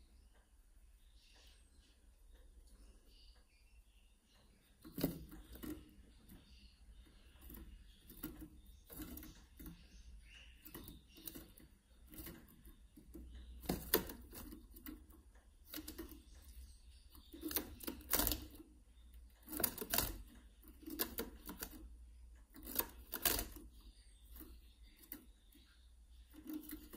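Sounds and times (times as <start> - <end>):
birds clicking in wire cage: 4.8 - 6.4, 7.4 - 9.8, 10.6 - 16.3, 17.1 - 18.7, 19.4 - 21.9, 22.5 - 25.3, 26.3 - 26.9.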